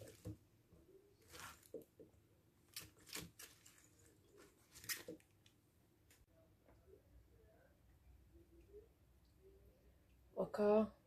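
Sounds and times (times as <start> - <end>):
vegetables rustling in colander: 1.2 - 1.8.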